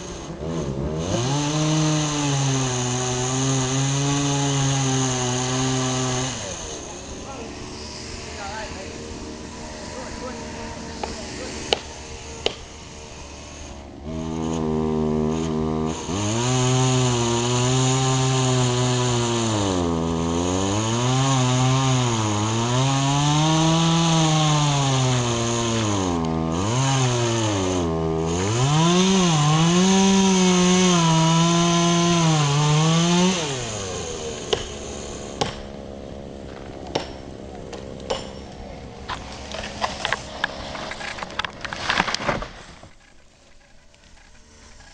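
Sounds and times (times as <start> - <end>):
chainsaw engine revving: 0.0 - 44.9
sharp cracks: 11.0 - 12.8, 36.4 - 44.9.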